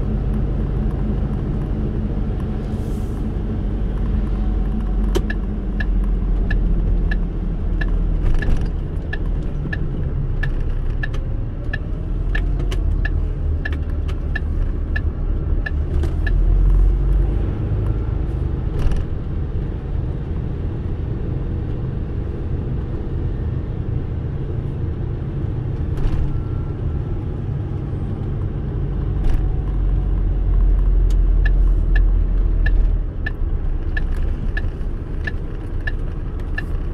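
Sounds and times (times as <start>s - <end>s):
car road rumble and tyre noise: 0.0s - 36.9s
turn signal ticking: 3.6s - 18.0s, 29.4s - 36.9s.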